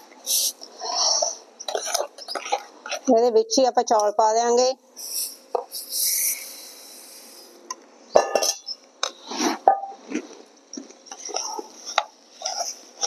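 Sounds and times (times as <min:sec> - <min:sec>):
spatula scraping and knocking pan: 0:01.7 - 0:03.0, 0:11.1 - 0:13.0.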